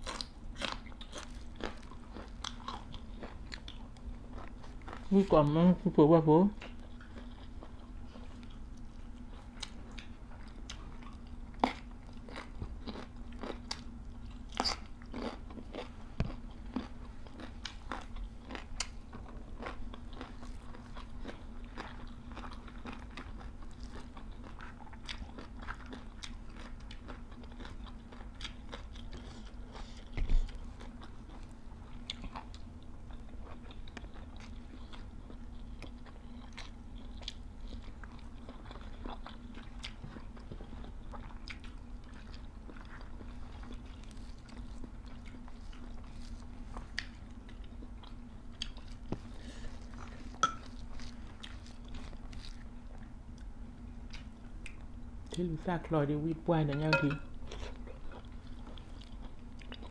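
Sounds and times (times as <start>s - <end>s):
chewing and crunching vegetables: 0.0s - 59.9s
faint steady hum: 0.0s - 59.9s.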